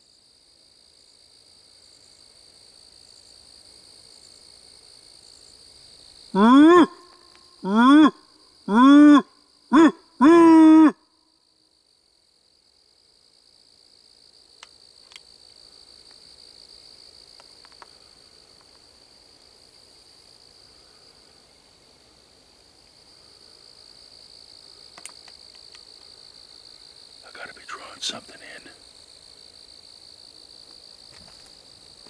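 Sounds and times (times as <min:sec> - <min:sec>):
night insect chorus: 0:00.0 - 0:32.0
faint clicks: 0:24.9 - 0:26.1.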